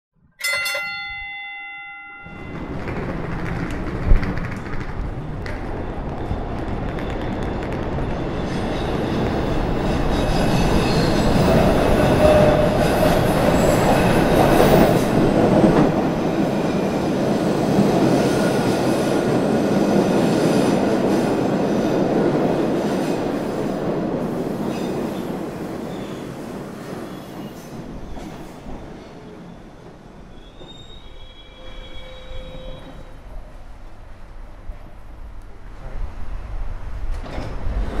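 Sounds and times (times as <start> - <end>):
subway train running: 2.2 - 38.0
wheels squealing on rails: 5.2 - 15.4, 24.2 - 33.4.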